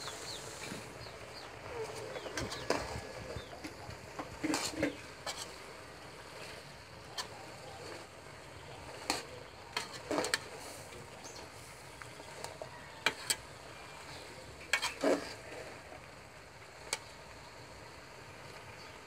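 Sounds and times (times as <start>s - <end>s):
faint steady hiss: 0.0s - 19.0s
spoon stirring soup in a pot: 14.6s - 15.4s.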